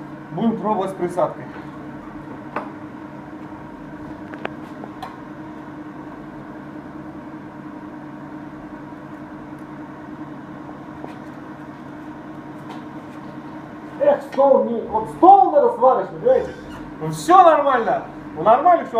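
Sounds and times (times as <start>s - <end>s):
welding machine electrical hum: 0.0s - 18.9s.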